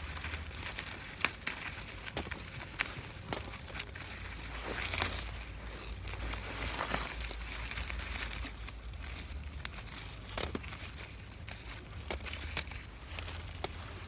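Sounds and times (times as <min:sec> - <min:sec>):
leaves and twigs rustling: 0:00.0 - 0:14.0.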